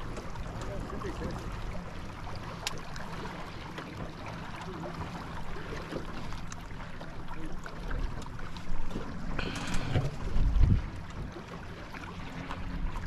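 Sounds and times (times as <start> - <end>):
waves lapping against metal hull: 0.0 - 13.0
wind rumbling on microphone: 8.8 - 11.4.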